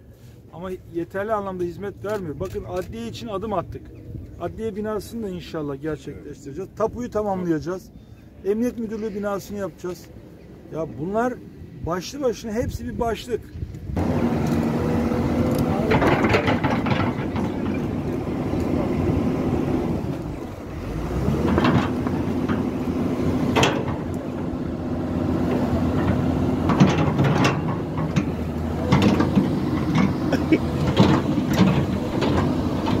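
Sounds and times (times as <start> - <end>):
excavator diesel engine: 14.0 - 33.0
metal knocks and clanks: 15.7 - 19.8, 21.4 - 22.8, 23.4 - 24.5, 25.5 - 33.0.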